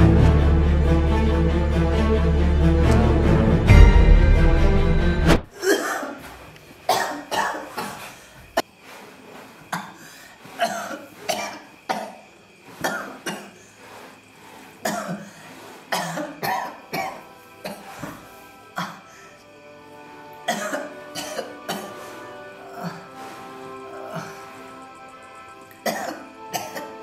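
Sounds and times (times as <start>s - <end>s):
man coughing: 5.6s - 6.2s.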